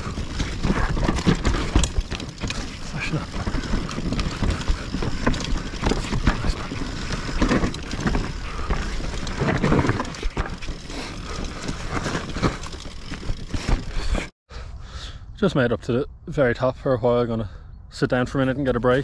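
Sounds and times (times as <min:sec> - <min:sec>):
bike knocking and rattling: 0:00.0 - 0:14.3
bike tyres rolling on dirt: 0:00.0 - 0:14.3.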